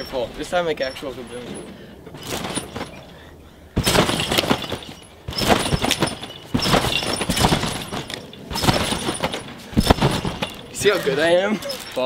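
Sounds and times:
trampoline rattling: 0:00.0 - 0:12.0
trampoline landing hits: 0:01.2 - 0:12.0.

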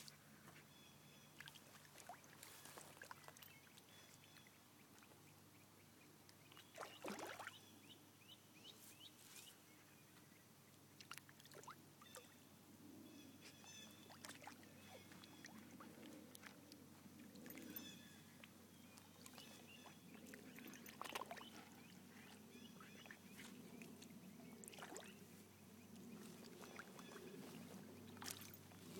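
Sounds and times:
splashing in shallow water: 0:01.3 - 0:04.6, 0:06.5 - 0:07.6, 0:13.5 - 0:18.3, 0:18.9 - 0:28.9.

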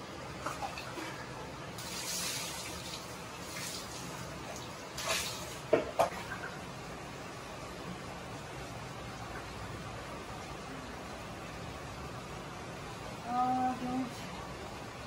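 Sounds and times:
water splashing and sloshing: 0:00.1 - 0:06.9
steady hiss: 0:01.5 - 0:05.8
sharp splashes: 0:05.0 - 0:06.1.

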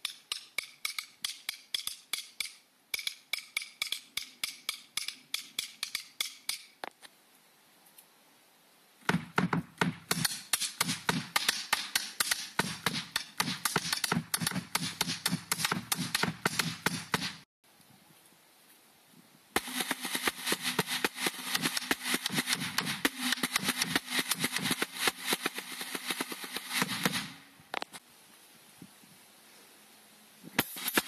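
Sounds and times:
fast drum stick strokes: 0:09.1 - 0:17.4, 0:19.6 - 0:27.4, 0:30.6 - 0:31.0
snare drum rolls: 0:09.1 - 0:17.4, 0:19.6 - 0:27.4, 0:30.6 - 0:31.0.

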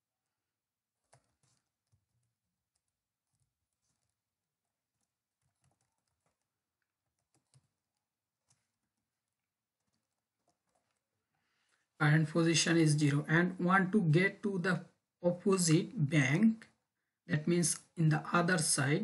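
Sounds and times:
computer keyboard typing: 0:01.0 - 0:04.2, 0:04.9 - 0:11.0.

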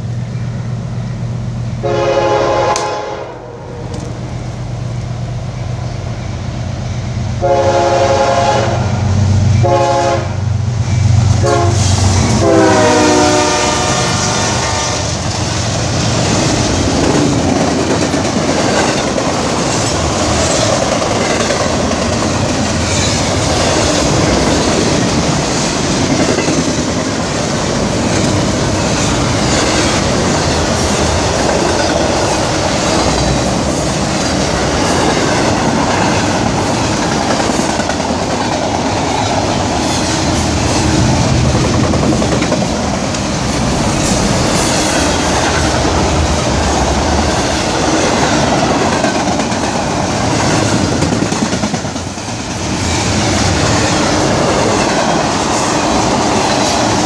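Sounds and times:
diesel locomotive rumble: 0:00.0 - 0:57.0
train horn blasts: 0:01.8 - 0:04.1, 0:07.4 - 0:09.0, 0:09.6 - 0:10.5, 0:11.4 - 0:15.2
train wheels clattering on rails: 0:10.7 - 0:57.0.

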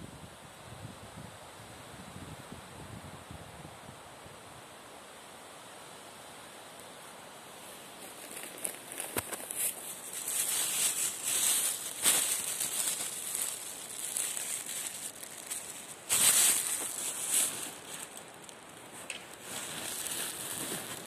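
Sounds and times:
footsteps on dry pine needles: 0:07.7 - 0:21.0.

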